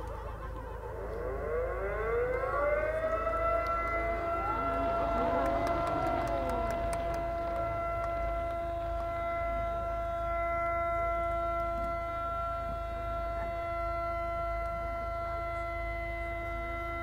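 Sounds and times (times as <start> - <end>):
steady held tone: 0.0 - 16.6
low rumble: 0.7 - 10.4.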